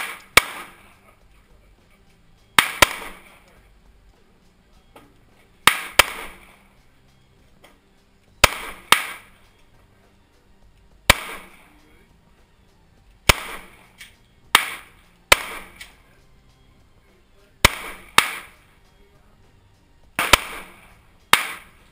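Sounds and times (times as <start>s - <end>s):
gunshot echo: 0.0s - 1.0s, 2.6s - 3.5s, 5.6s - 6.6s, 8.4s - 9.4s, 11.1s - 11.8s, 13.2s - 16.0s, 17.6s - 18.7s, 20.2s - 21.8s
pistol shots: 0.0s - 1.0s, 2.6s - 3.5s, 5.6s - 6.7s, 8.4s - 9.4s, 11.1s - 11.7s, 13.2s - 16.0s, 17.6s - 18.7s, 20.2s - 21.9s.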